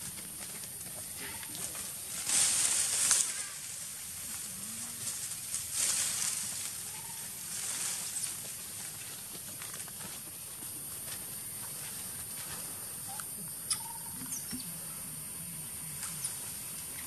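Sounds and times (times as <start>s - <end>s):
footsteps on dry leaves: 0.0s - 12.9s.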